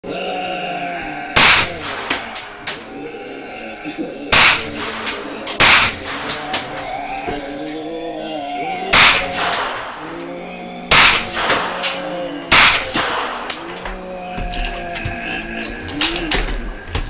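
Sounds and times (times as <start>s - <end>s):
rifle gunshots: 1.4s - 2.3s, 4.3s - 6.7s, 8.9s - 10.0s, 10.9s - 13.6s.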